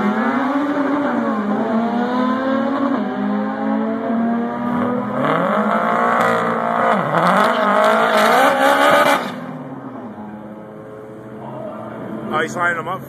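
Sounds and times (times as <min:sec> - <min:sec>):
car engine revving hard: 0:00.0 - 0:09.6.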